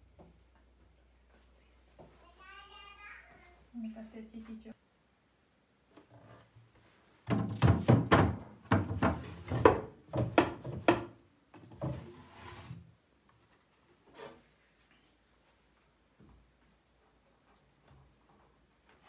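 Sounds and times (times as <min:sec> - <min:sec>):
wood sliding on wood: 0:11.8 - 0:12.8.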